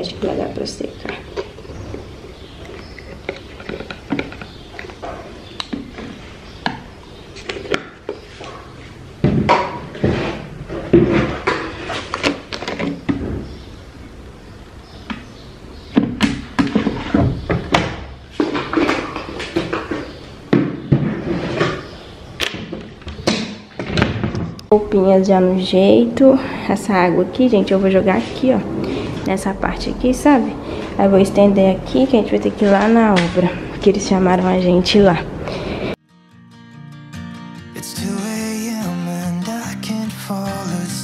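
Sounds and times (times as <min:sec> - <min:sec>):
plastic bottles knocking: 0:02.8 - 0:06.8, 0:16.0 - 0:21.8.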